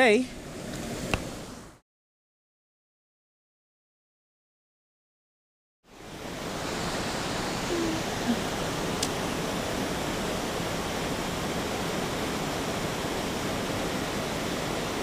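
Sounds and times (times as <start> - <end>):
water rushing over a weir: 6.0 - 15.0.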